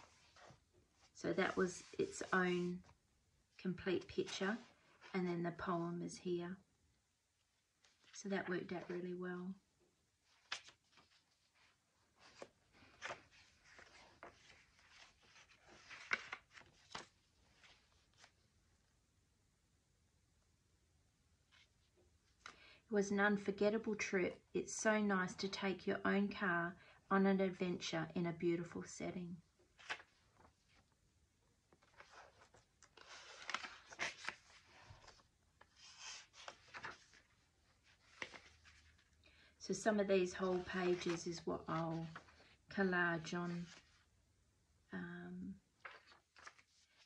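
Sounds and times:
paper pages rustling: 0:10.2 - 0:18.4, 0:29.7 - 0:31.0, 0:31.7 - 0:39.2, 0:40.2 - 0:42.6, 0:43.4 - 0:44.0, 0:45.8 - 0:47.0.

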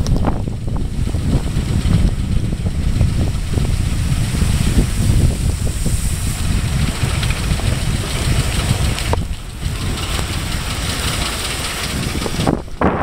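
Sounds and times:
car engine running: 0:00.0 - 0:13.0
road noise: 0:00.0 - 0:13.0
wind buffeting microphone: 0:00.0 - 0:13.0.

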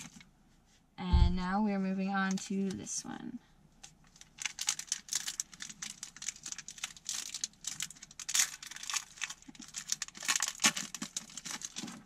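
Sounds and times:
foil wrapper crinkling and tearing: 0:04.0 - 0:12.0.

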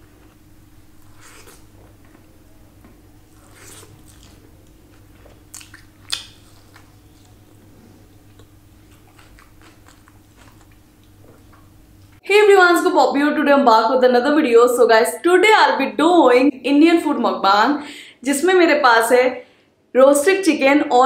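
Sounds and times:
faint steady hum: 0:00.0 - 0:21.0
person chewing food: 0:01.0 - 0:01.9, 0:03.3 - 0:11.8.

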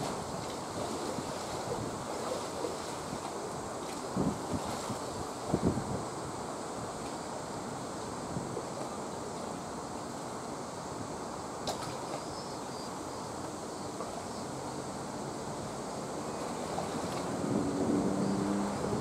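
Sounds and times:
wind blowing across microphone: 0:00.0 - 0:09.9, 0:14.6 - 0:19.0.

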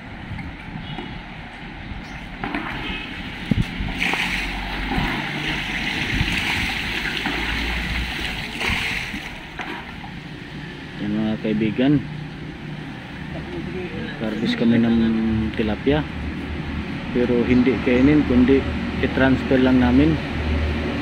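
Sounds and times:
sharp slaps of water: 0:02.4 - 0:10.3
shallow water splashing: 0:02.4 - 0:10.4.

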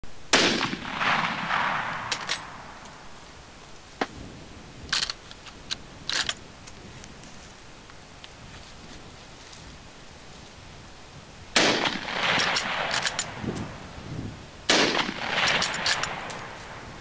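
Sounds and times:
rifle shot echoing: 0:00.3 - 0:03.0, 0:11.6 - 0:13.4, 0:14.7 - 0:16.8
rifle bolt clicking: 0:12.4 - 0:13.3, 0:15.5 - 0:16.4.

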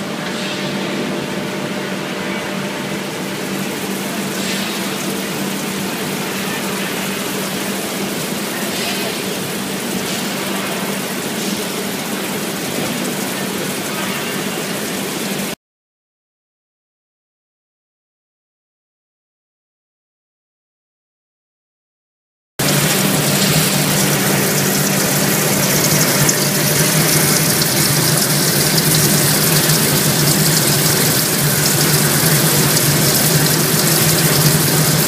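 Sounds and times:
tube mill machinery humming: 0:00.0 - 0:15.6, 0:22.6 - 0:35.0.

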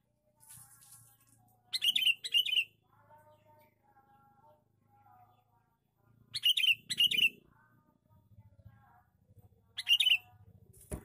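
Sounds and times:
bulbul warbling calls: 0:01.7 - 0:02.8, 0:06.3 - 0:07.4, 0:09.7 - 0:10.3.

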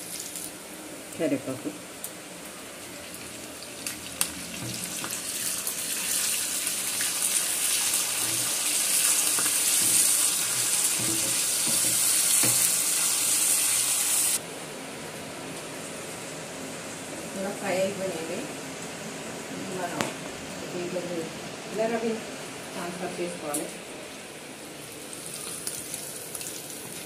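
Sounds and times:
spices sizzling in hot oil: 0:00.0 - 0:14.4, 0:24.7 - 0:27.0.

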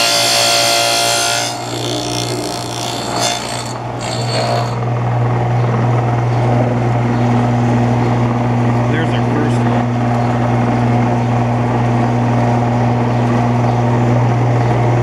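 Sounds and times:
wood scraping against blade: 0:00.0 - 0:04.8
saw blade cutting whine: 0:00.0 - 0:04.9
table saw running hum: 0:00.0 - 0:05.2.

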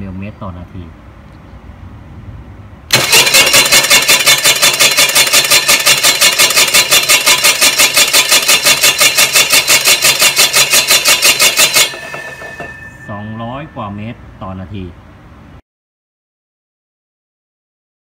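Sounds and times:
winch motor running: 0:02.9 - 0:13.8.

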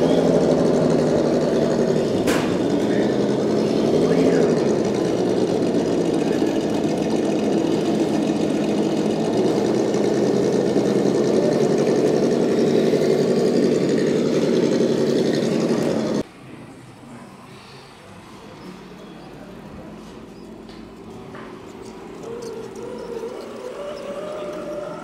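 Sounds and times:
rc truck motor whirring: 0:00.0 - 0:16.2, 0:20.2 - 0:25.0.

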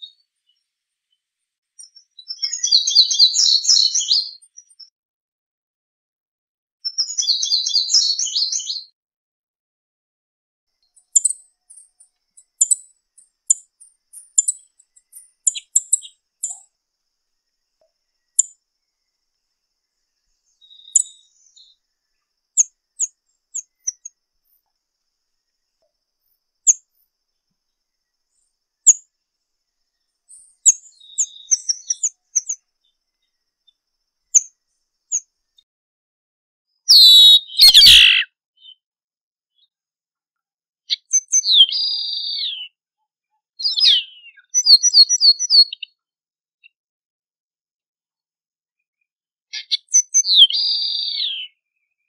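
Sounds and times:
high-pitched bird call notes: 0:36.9 - 0:38.3.

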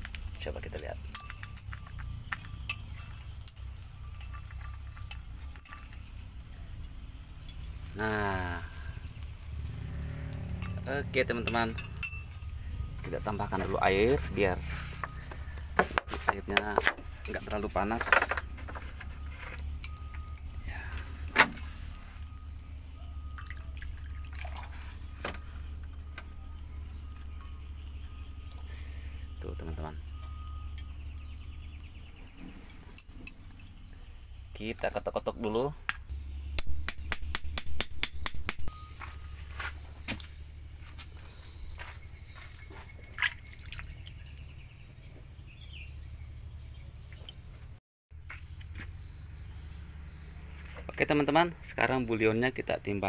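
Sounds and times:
metal tool clinking on glass bowl: 0:00.7 - 0:07.8, 0:10.5 - 0:13.7, 0:16.3 - 0:18.6.

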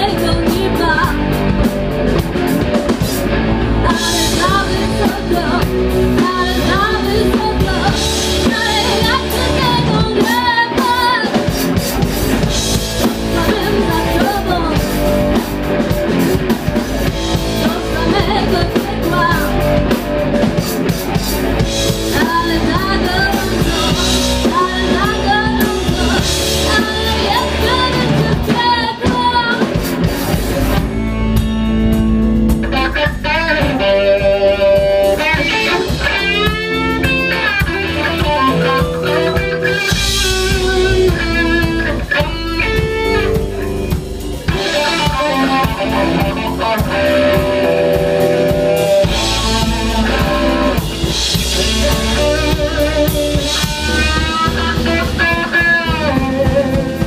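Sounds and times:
woman singing: 0:00.0 - 0:01.4, 0:03.8 - 0:11.7, 0:13.0 - 0:15.4, 0:17.4 - 0:20.0, 0:21.9 - 0:29.9
live rock band playing: 0:00.0 - 0:57.0.

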